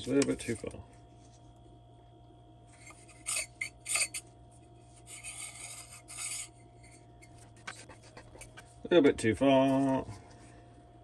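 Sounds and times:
scraping and rubbing of motor parts: 2.7s - 8.8s.

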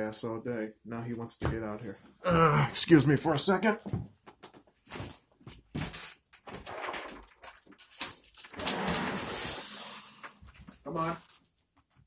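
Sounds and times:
door scraping open: 8.5s - 10.4s.

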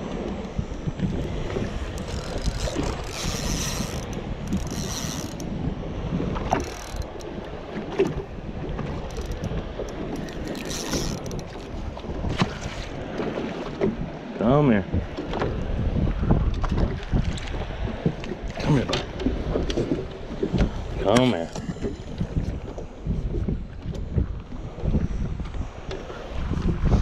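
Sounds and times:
wind on microphone: 0.0s - 27.0s
spinning reel whirring and clicking: 1.5s - 5.5s, 6.5s - 7.6s, 8.9s - 11.7s.

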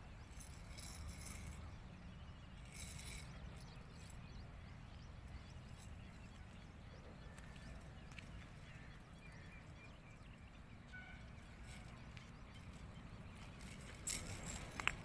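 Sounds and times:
faint bird chirps: 0.0s - 14.9s
rustle: 0.3s - 1.7s, 2.6s - 4.2s, 11.2s - 15.0s.

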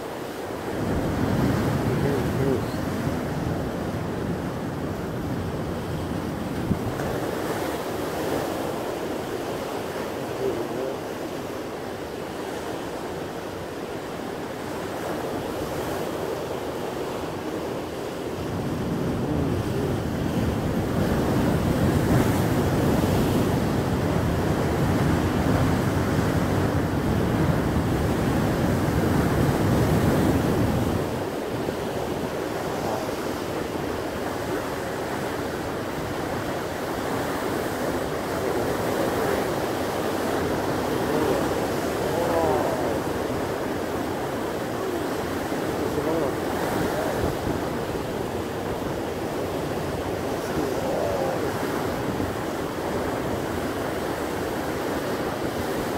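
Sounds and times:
surf breaking over rocks: 14.5s - 55.9s.

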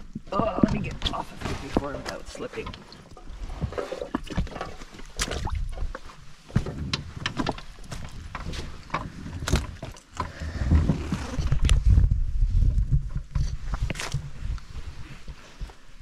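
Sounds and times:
dinghy bumping against rocks: 0.0s - 11.8s.

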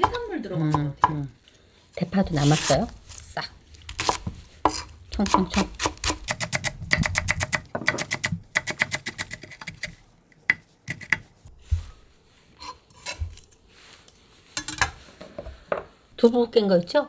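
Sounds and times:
knife chopping on wooden board: 4.0s - 9.5s.

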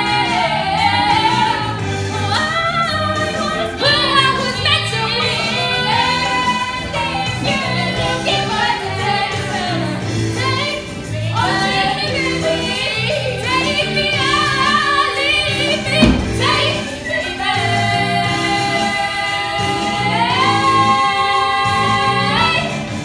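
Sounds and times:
instrumental accompaniment with bass: 0.0s - 23.0s
women singing a duet: 0.0s - 23.0s
thump: 15.9s - 16.8s.

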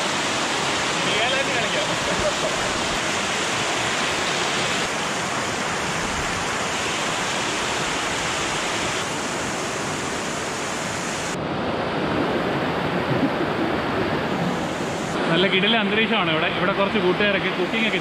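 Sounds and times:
waterfall rushing over rock: 0.0s - 11.4s.

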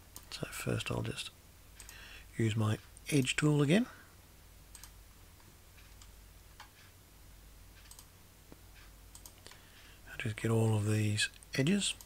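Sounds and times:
steady low hum: 0.0s - 12.0s
faint computer mouse clicks: 4.7s - 5.0s, 7.8s - 9.6s.

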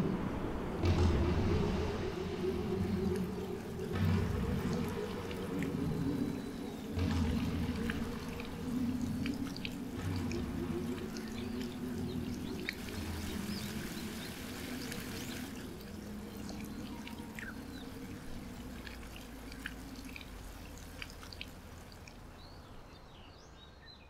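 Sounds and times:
low drone: 0.0s - 22.1s.

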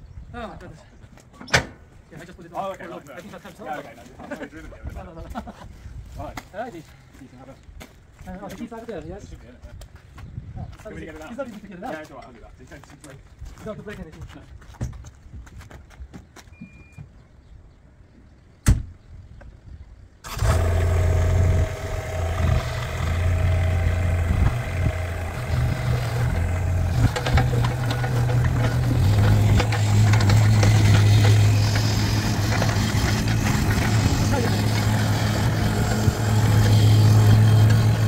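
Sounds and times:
short beep: 16.5s - 17.1s
diesel engine running: 20.2s - 38.0s.

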